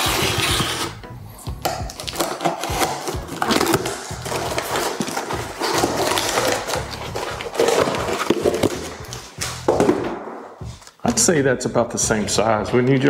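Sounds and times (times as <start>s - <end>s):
packing tape cut and torn: 0.0s - 9.6s
background music: 0.0s - 13.0s
cardboard crinkling and crackling: 1.9s - 9.2s.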